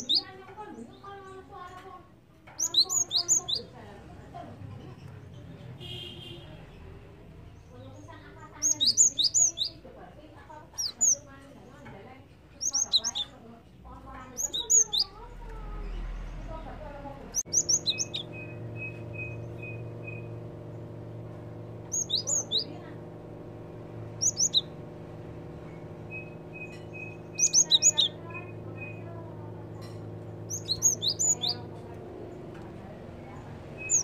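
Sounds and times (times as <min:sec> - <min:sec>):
bird calling high sharp notes: 0:00.0 - 0:00.3, 0:02.5 - 0:03.7, 0:08.4 - 0:09.8, 0:12.6 - 0:13.4, 0:14.3 - 0:16.0, 0:17.3 - 0:23.0, 0:23.7 - 0:24.9, 0:25.6 - 0:31.7, 0:33.3 - 0:34.0.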